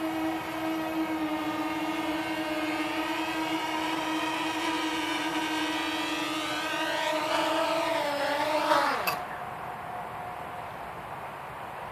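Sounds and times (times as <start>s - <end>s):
quadcopter propellers buzzing: 0.0s - 9.4s.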